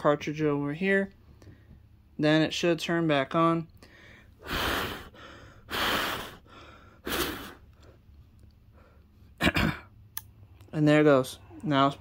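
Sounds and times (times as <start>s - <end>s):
person blowing air: 4.4s - 7.7s.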